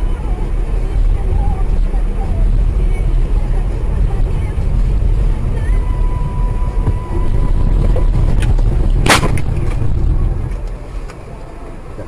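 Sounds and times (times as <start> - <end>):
vehicle rumbling on road: 0.0 - 12.0
sharp bang: 7.8 - 10.2.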